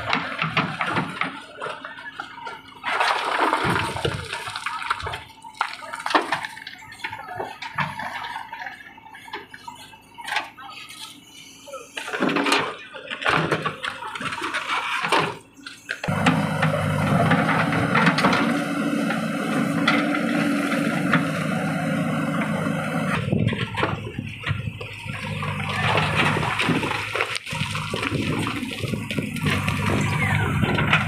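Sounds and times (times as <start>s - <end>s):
sliding rubble: 0.0s - 11.3s, 12.0s - 31.0s.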